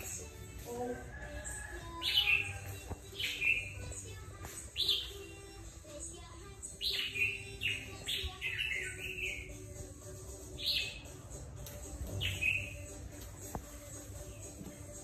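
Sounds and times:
bird whistling song: 2.0 - 4.0, 4.6 - 5.4, 6.7 - 9.7, 10.6 - 11.2, 12.1 - 13.0.

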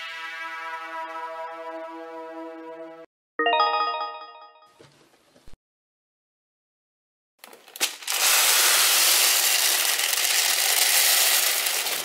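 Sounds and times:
beads clattering on tabletop: 7.8 - 12.0.

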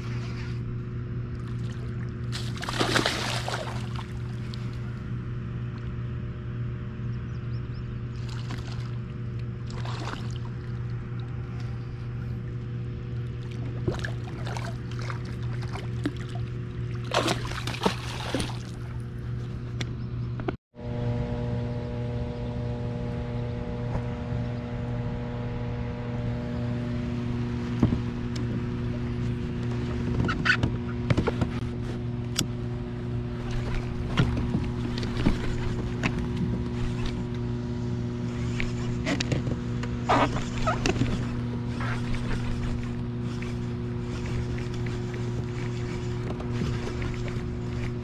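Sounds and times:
steady low hum: 0.0 - 48.0
fish splashing at surface: 1.6 - 4.2, 13.9 - 19.0.

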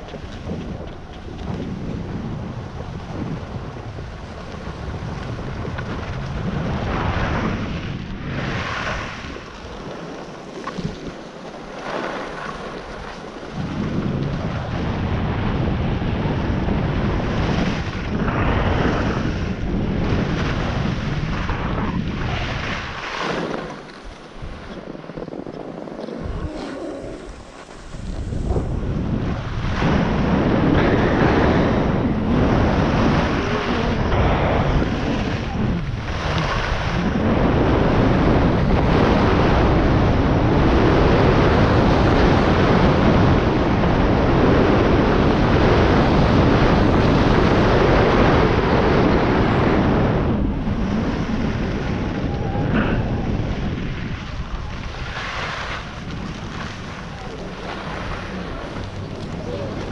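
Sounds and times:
wind buffeting microphone: 0.0 - 59.9
skis hissing on snow: 26.4 - 28.7.

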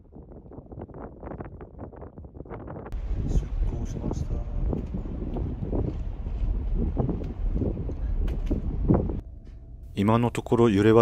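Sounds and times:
ferry engines humming: 3.0 - 11.0.

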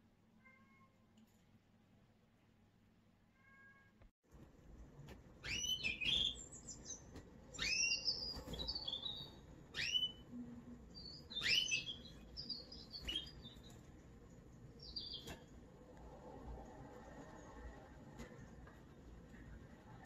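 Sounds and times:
canary singing: 5.4 - 10.3, 10.9 - 13.9, 14.7 - 15.5.

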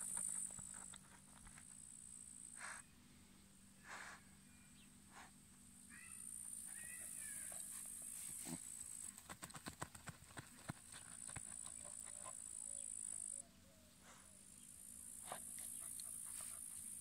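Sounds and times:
insects trilling: 5.9 - 9.2
dog sniffing: 15.2 - 17.0.

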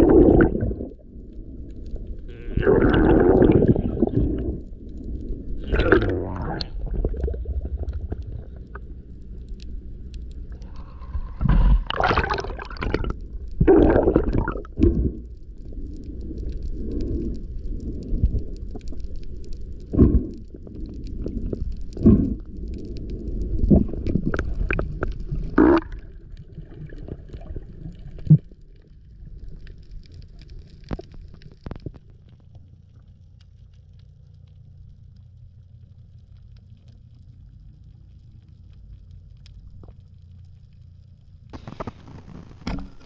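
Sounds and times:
water sloshing and splashing: 0.0 - 1.1, 10.6 - 15.1
bubbling: 0.0 - 34.0
low underwater rumble: 0.0 - 43.0.

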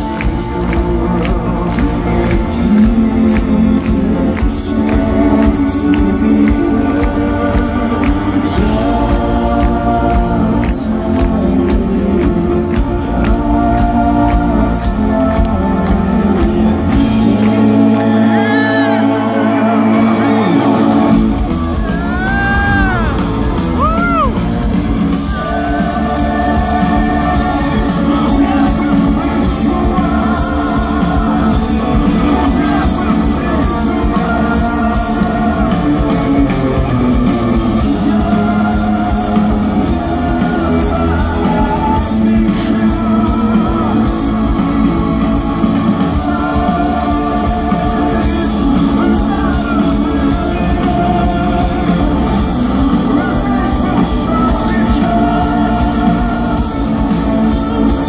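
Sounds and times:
live rock band playing: 0.0 - 58.0
person singing: 0.0 - 58.0
audience whooping and cheering: 18.1 - 42.4.

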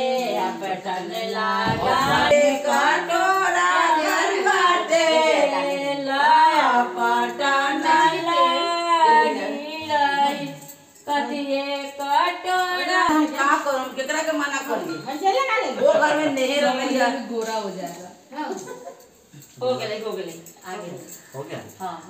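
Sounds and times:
women singing without instruments: 0.0 - 14.1.

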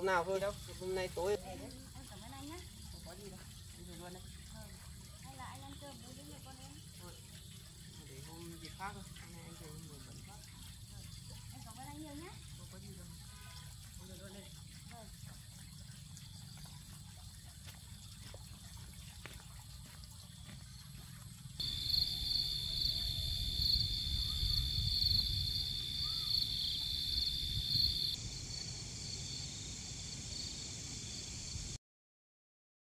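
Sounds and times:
insects trilling: 0.0 - 18.4, 20.0 - 31.8
faint high hiss: 21.6 - 31.8.

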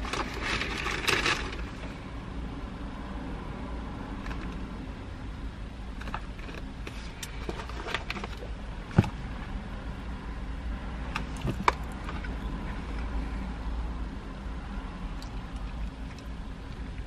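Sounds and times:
paper bag rustling: 0.0 - 2.0
low rumble inside van cab: 0.0 - 17.0.

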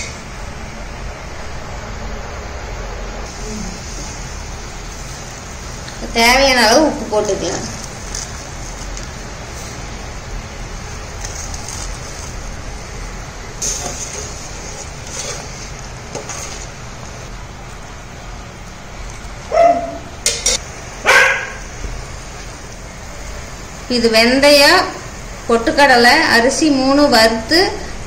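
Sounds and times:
spoon stirring: 13.6 - 16.8
dog barking: 19.5 - 20.0, 21.0 - 21.6.

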